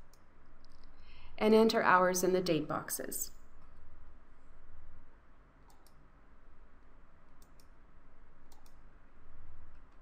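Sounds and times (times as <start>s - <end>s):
faint low hum: 0.0s - 10.0s
computer mouse clicks: 5.6s - 6.0s, 7.3s - 7.8s, 8.5s - 8.8s, 9.7s - 10.0s.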